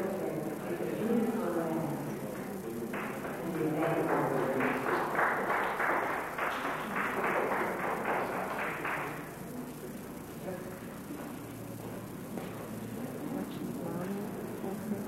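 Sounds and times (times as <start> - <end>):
audience applauding: 2.3 - 9.4.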